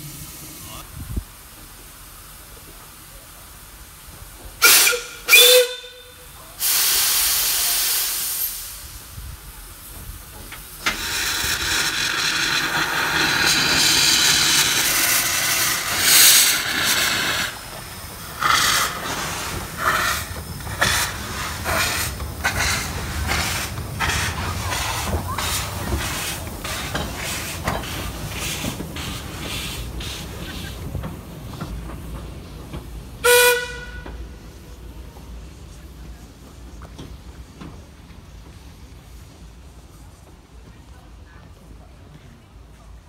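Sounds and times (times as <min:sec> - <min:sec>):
steam hissing: 0:00.0 - 0:37.6
steam whistle blasts: 0:04.6 - 0:07.4, 0:33.2 - 0:34.1
steam exhaust chuffs: 0:06.6 - 0:34.7.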